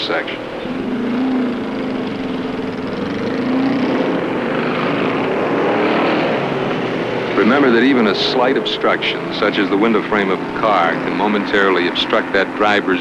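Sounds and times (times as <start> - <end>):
motorcycle engine running: 0.0 - 13.0
road noise rushing: 0.0 - 13.0.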